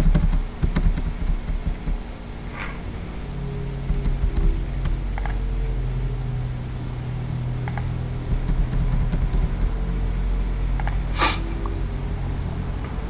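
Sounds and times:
steady low hum: 0.0s - 13.0s
computer clicks: 5.2s - 5.4s, 7.7s - 7.9s, 10.8s - 11.4s.

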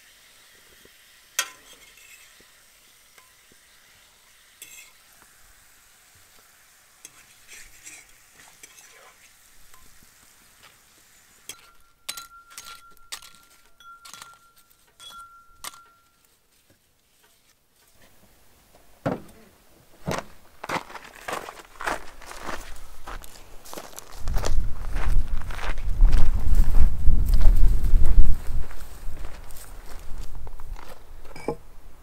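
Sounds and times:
heavy footsteps: 20.0s - 31.1s.

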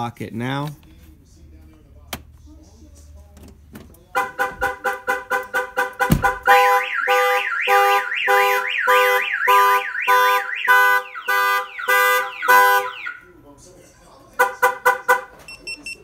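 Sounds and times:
car alarm siren: 4.2s - 13.3s
thump: 6.0s - 6.4s.

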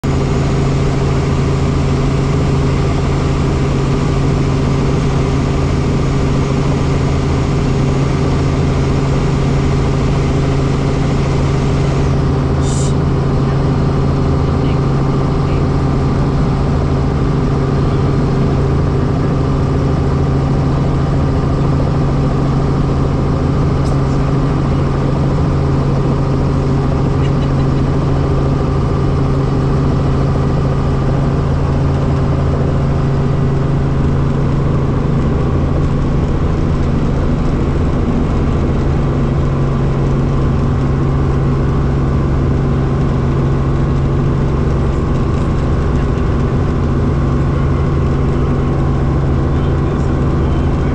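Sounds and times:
helicopter engine and rotor hum: 0.0s - 50.9s.

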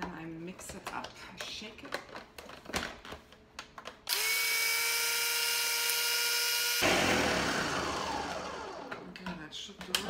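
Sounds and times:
blender motor whining and churning: 4.1s - 9.1s.

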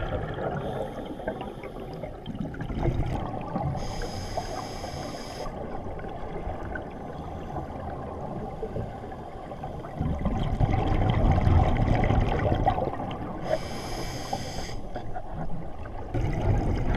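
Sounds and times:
exhaust bubbles rumbling: 0.0s - 0.8s, 10.0s - 13.3s, 16.0s - 16.9s
hissing regulator inhalation: 13.5s - 14.8s.

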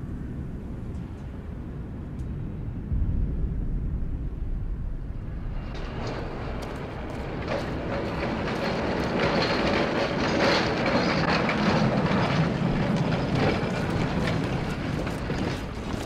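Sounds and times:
tram rumble: 0.0s - 16.0s
tram wheels clattering on rails: 5.3s - 16.0s.

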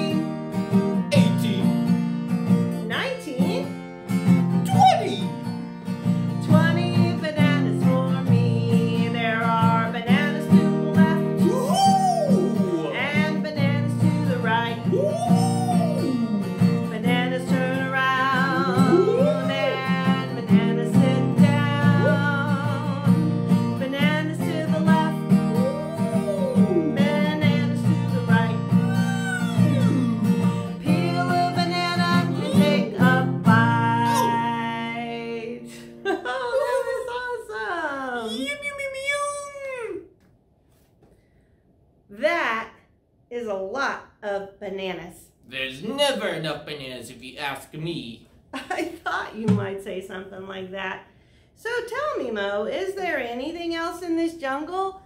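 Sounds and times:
woman singing: 0.0s - 0.4s, 2.8s - 3.7s, 6.4s - 38.2s
acoustic guitar strumming: 0.0s - 35.6s.

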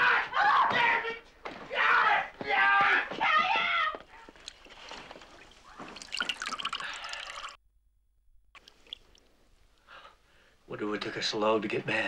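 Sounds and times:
bathwater splashing: 4.2s - 7.6s, 8.6s - 9.5s
faint water drips: 4.2s - 7.6s, 8.6s - 10.1s.

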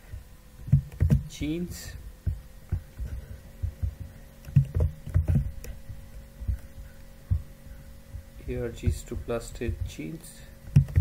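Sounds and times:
muffled keyboard typing: 0.7s - 1.4s, 2.3s - 5.8s, 10.6s - 11.0s.

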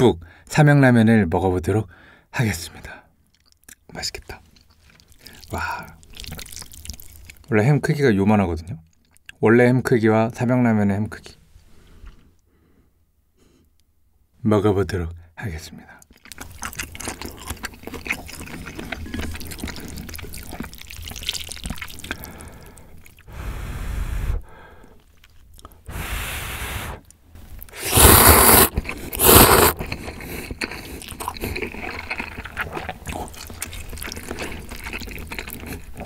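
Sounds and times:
wet chewing: 3.3s - 7.5s, 16.0s - 23.3s, 24.7s - 26.0s, 26.9s - 36.0s
slurping noodles: 16.7s - 24.5s, 25.8s - 36.0s
mouth clicks: 25.6s - 31.4s.

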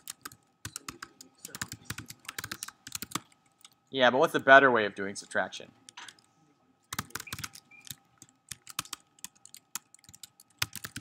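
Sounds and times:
typing on computer keyboard: 0.0s - 3.8s, 6.9s - 11.0s.

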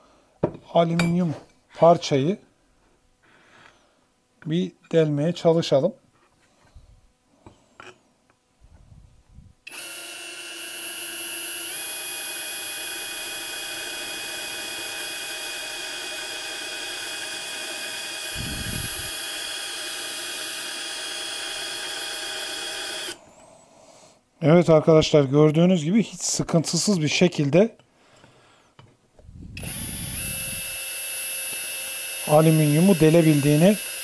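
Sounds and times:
drill motor whine: 9.7s - 23.2s, 29.5s - 34.0s.

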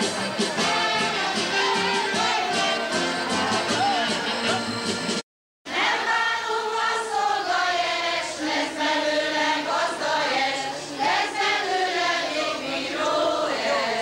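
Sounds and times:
women singing folk song: 5.7s - 14.0s.

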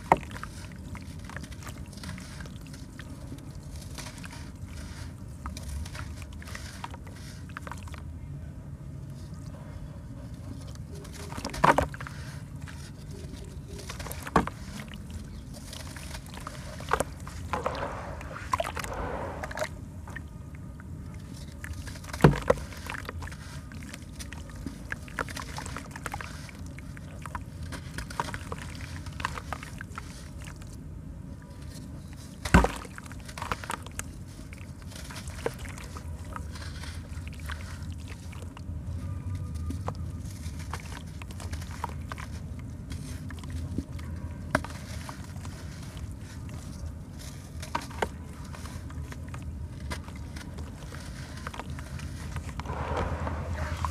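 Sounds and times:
sloshing water: 10.6s - 30.8s, 31.6s - 39.0s, 39.6s - 53.9s
sharp impacts: 52.6s - 53.9s.

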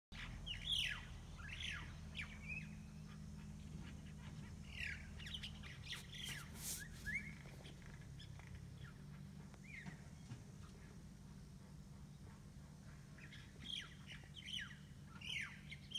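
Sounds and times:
bird singing whistles and squawks: 4.8s - 7.6s.

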